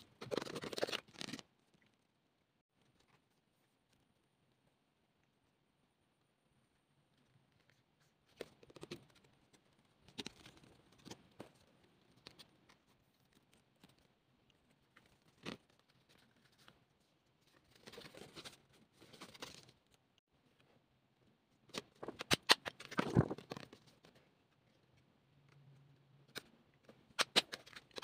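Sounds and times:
paper rustling: 0:15.0 - 0:19.8, 0:21.7 - 0:24.2.

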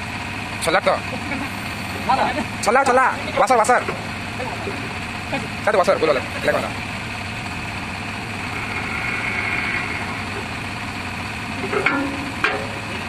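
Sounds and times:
diesel engine idling: 0:00.0 - 0:13.0
high whine: 0:07.0 - 0:13.0.

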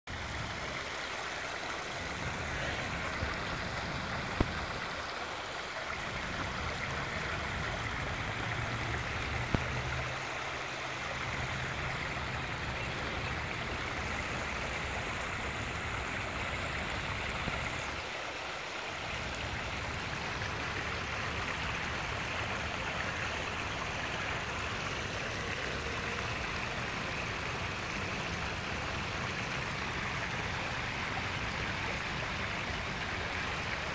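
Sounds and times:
water cascading into pond: 0:00.1 - 0:33.9.

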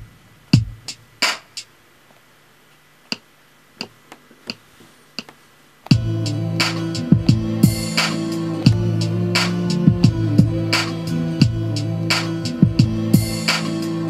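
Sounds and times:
drum pad sample hits: 0:00.0 - 0:01.7, 0:05.9 - 0:14.0
music loop with bass line: 0:00.0 - 0:01.7, 0:05.9 - 0:14.0.

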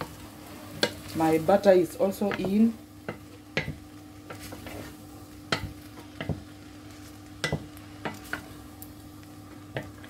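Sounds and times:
wooden spoon stirring spaghetti: 0:02.0 - 0:08.7
spoon knocking against pot: 0:07.4 - 0:08.2.

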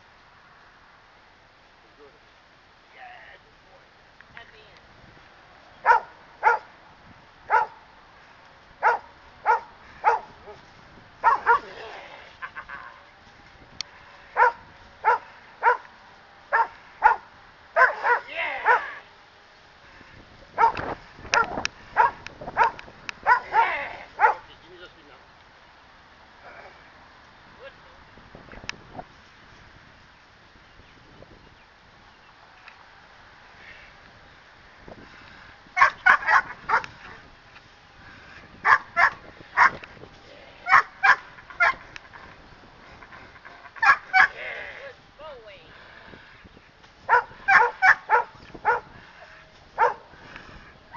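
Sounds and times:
dog barking sharply: 0:05.8 - 0:06.7, 0:07.5 - 0:07.8, 0:11.2 - 0:11.7, 0:17.8 - 0:19.0, 0:35.8 - 0:36.8, 0:38.7 - 0:39.8, 0:40.7 - 0:41.8, 0:47.1 - 0:48.8.

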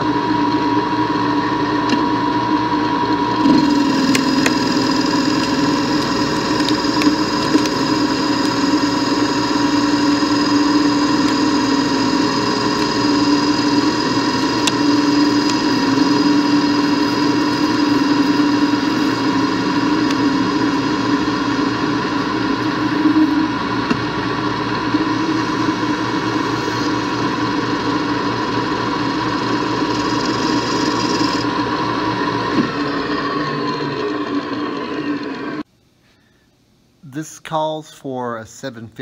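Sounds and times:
lathe hum and whine: 0:00.0 - 0:35.7
cutting tool hiss: 0:03.6 - 0:23.4, 0:25.0 - 0:31.5.

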